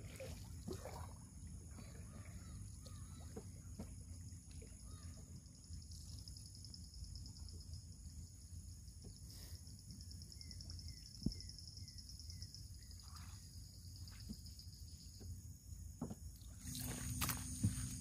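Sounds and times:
insects trilling: 1.8s - 18.0s
paddle knocking on canoe: 16.0s - 16.3s.

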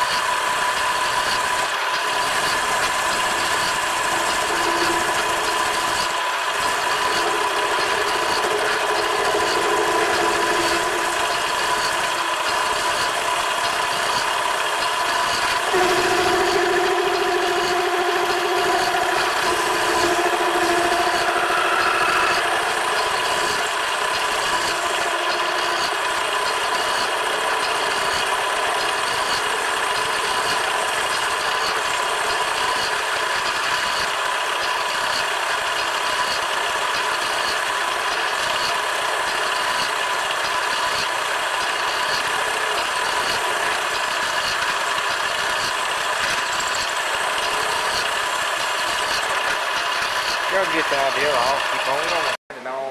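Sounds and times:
metal lathe motor and gear whine: 0.0s - 52.4s
lower cutting tone: 0.9s - 33.9s.

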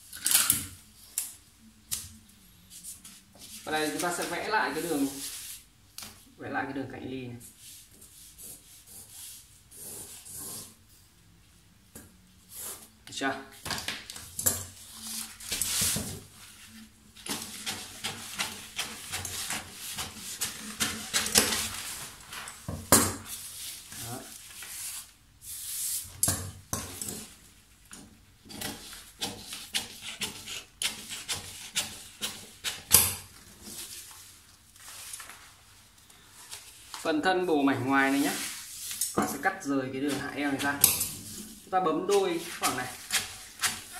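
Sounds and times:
stiff paper rustling: 14.9s - 25.1s, 33.4s - 37.2s.

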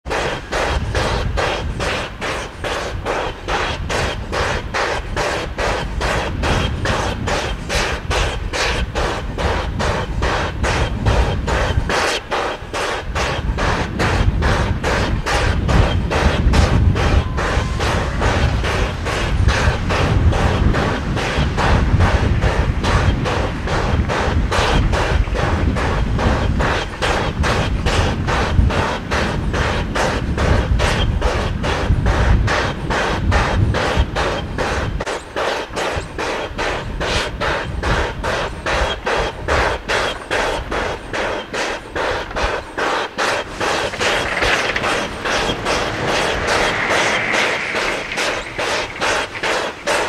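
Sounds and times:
steam locomotive chuffing: 0.0s - 50.0s
low rumble: 43.9s - 49.8s.

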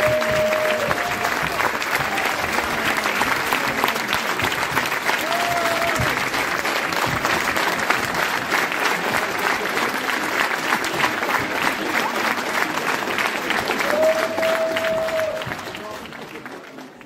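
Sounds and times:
long calls from crowd: 0.0s - 4.2s, 13.8s - 15.7s
audience applauding: 0.0s - 17.0s.

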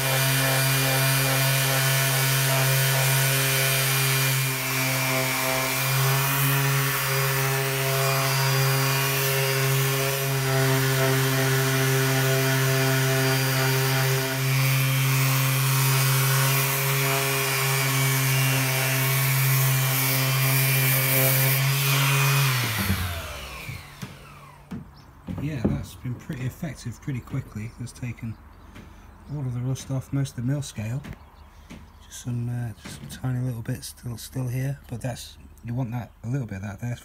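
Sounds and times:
orbit sander on steel: 0.0s - 26.5s.

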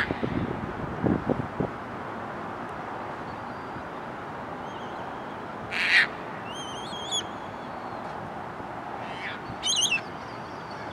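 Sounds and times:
high wavering bird call: 5.8s - 7.8s, 9.2s - 10.9s
harsh bird squawk: 9.0s - 10.0s.

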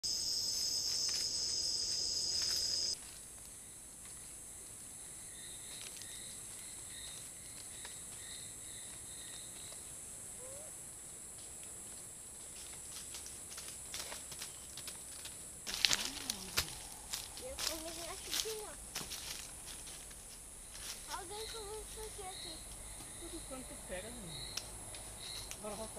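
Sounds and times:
loud high insect chorus: 0.0s - 25.9s
quiet high insect whine: 0.0s - 25.9s
crackles in leaf litter: 12.4s - 22.4s
faint repeated chirping: 20.6s - 25.6s.

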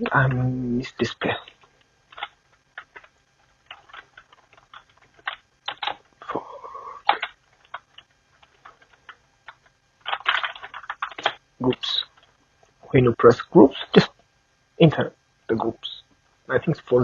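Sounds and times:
computer keyboard keys clicking: 1.6s - 6.0s, 7.0s - 12.3s.

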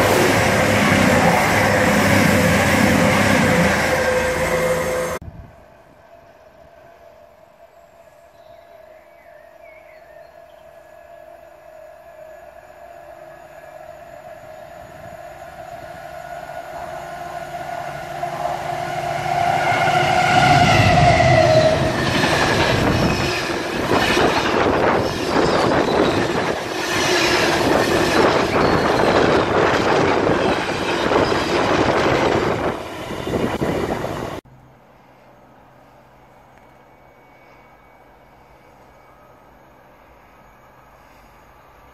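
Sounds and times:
locomotive passing at speed: 0.0s - 5.2s, 14.0s - 34.4s
wagons rumbling over rails: 0.0s - 5.2s, 13.2s - 34.4s.

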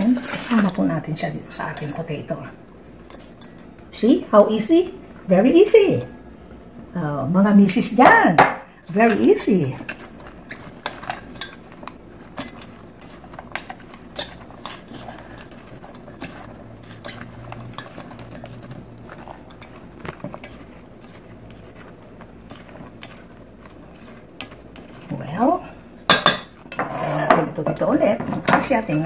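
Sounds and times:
spatula stirring in metal bowl: 0.0s - 6.3s, 7.7s - 29.0s
knocks and scrapes on metal bowl: 8.0s - 29.0s.

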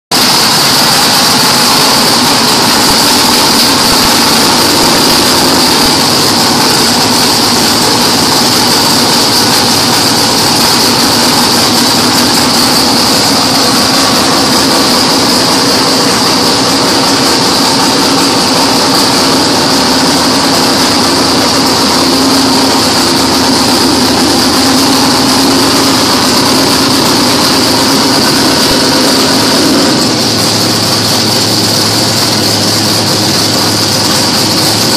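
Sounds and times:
race car engine idling: 0.1s - 34.9s.

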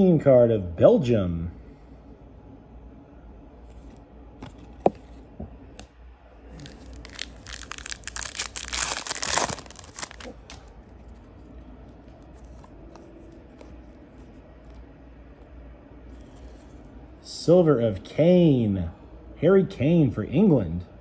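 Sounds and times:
foil wrapper tearing and crinkling: 6.5s - 10.7s.

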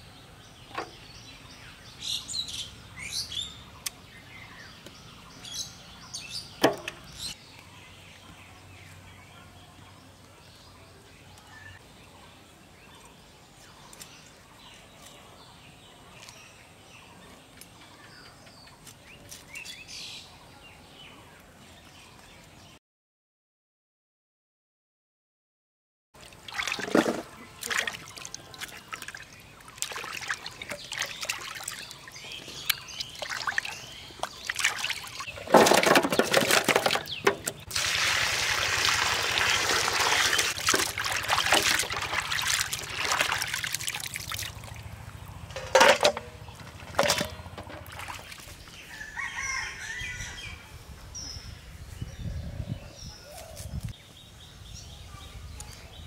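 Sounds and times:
water pouring: 26.2s - 32.0s, 33.0s - 44.8s
water sloshing in metal basin: 26.2s - 48.6s
rooster crowing: 48.9s - 50.7s.

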